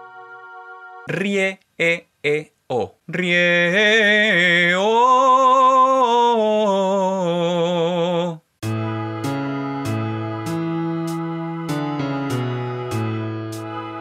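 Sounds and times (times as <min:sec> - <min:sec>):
instrumental backing chords: 0:00.0 - 0:01.1, 0:08.6 - 0:14.0
man singing vocalise: 0:01.1 - 0:08.5.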